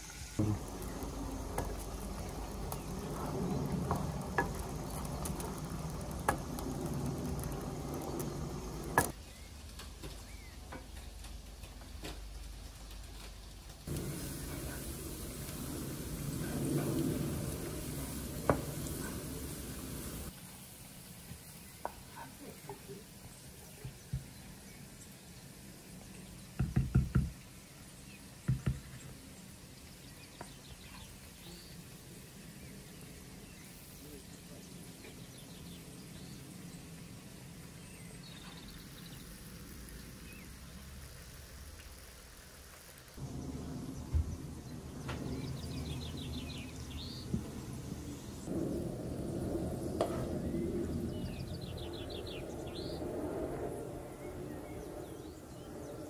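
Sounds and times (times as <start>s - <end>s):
onions sizzling in a pan: 0.0s - 9.4s, 13.5s - 26.5s, 27.5s - 43.5s.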